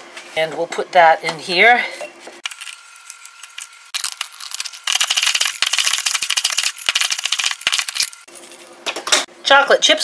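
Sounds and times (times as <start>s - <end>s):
cracker pieces rattling in glass jar: 2.4s - 8.6s.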